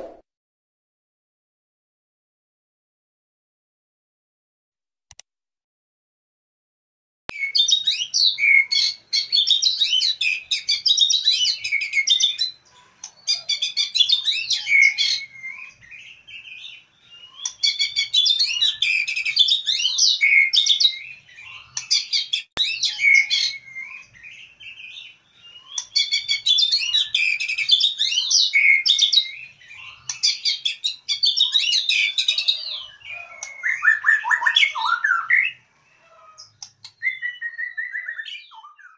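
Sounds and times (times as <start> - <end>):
bird singing whistles and chatter: 7.3 - 35.6, 36.2 - 38.9.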